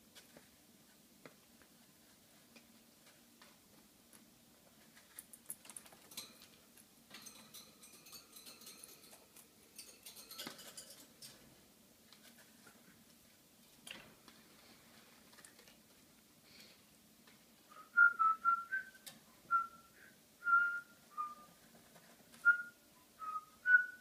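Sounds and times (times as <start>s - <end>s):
bird pecking at a dish: 4.8s - 11.4s.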